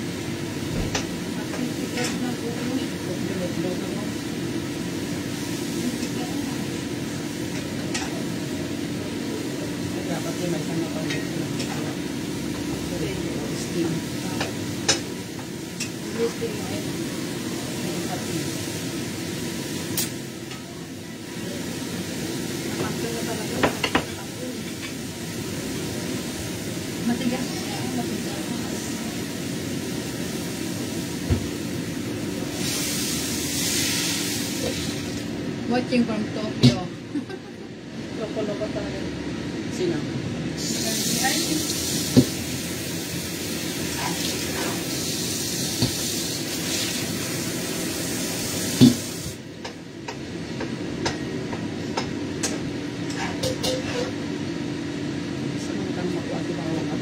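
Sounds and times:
food sizzling in hot oil: 0:00.0 - 0:35.8, 0:40.6 - 0:51.2
vegetables stir-frying in a wok: 0:00.0 - 0:36.3, 0:40.3 - 0:55.6
range hood fan humming: 0:00.0 - 0:57.0.

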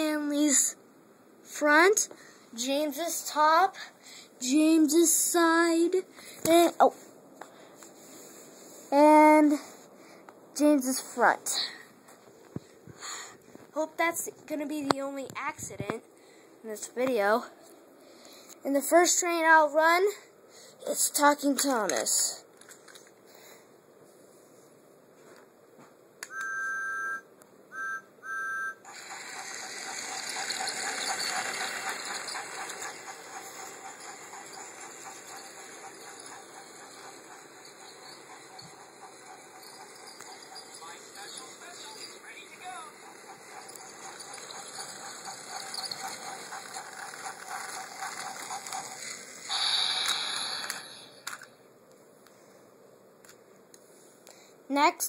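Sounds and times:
toy train whistle toots: 0:26.3 - 0:32.8, 0:49.5 - 0:51.1
toy train motor whirring: 0:28.8 - 0:51.5
chuffing steam sound effect: 0:28.9 - 0:51.4.

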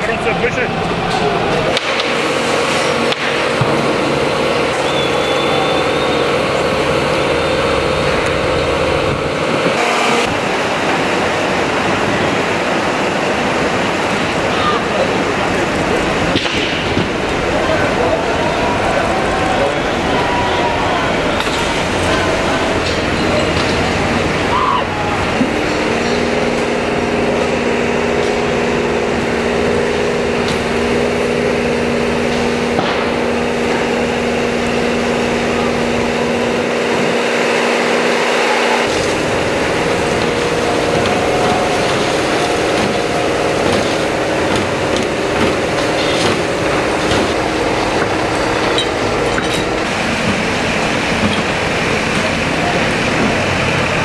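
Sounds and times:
truck engine and pump humming: 0:00.0 - 0:54.0
water jet rushing: 0:00.0 - 0:54.0.

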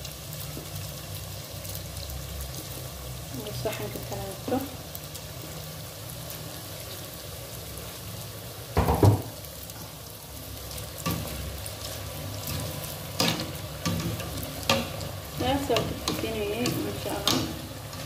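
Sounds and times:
dough deep-frying sizzle: 0:00.0 - 0:18.0
loud dull thump: 0:08.8 - 0:09.3.

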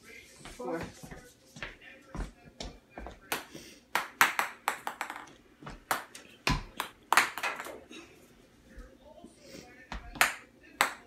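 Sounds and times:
ping-pong balls bouncing on floor: 0:02.6 - 0:07.8, 0:09.9 - 0:11.0.

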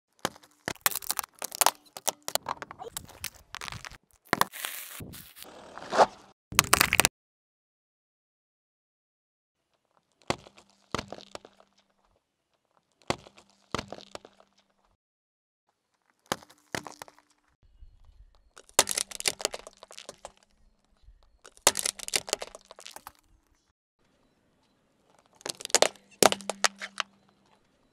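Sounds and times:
tyre crushing beetroots: 0:00.1 - 0:07.1, 0:16.0 - 0:17.5, 0:18.5 - 0:20.5, 0:21.4 - 0:23.3, 0:25.1 - 0:27.2
glass jar shattering: 0:00.7 - 0:02.1.

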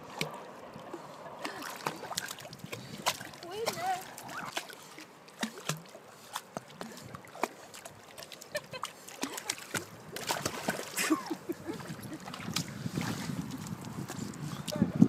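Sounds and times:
dog splashing in water: 0:00.1 - 0:11.2.

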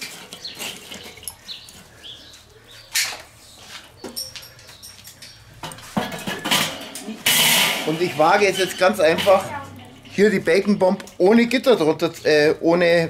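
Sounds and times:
charcoal scraping and clinking: 0:00.0 - 0:01.8, 0:05.1 - 0:11.6
metal grate clanking: 0:05.6 - 0:11.7.

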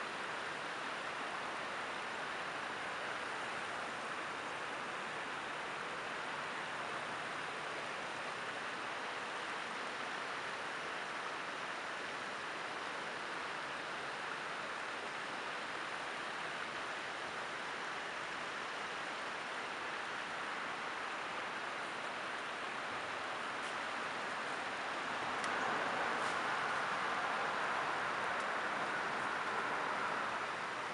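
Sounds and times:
creek water rushing over rocks: 0:00.0 - 0:30.9.

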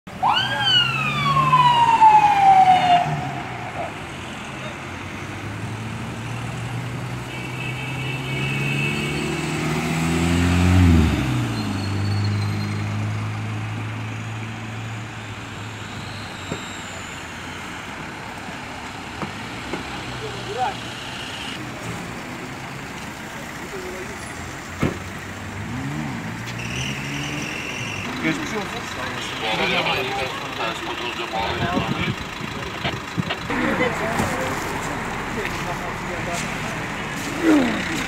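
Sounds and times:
ambulance siren: 0:00.1 - 0:06.8, 0:13.7 - 0:21.6
car engines passing: 0:00.1 - 0:38.0.

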